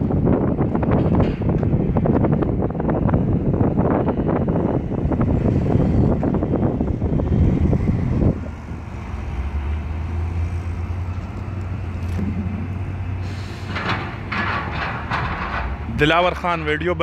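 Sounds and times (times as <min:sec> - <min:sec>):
diesel truck engine running: 0:00.0 - 0:17.0.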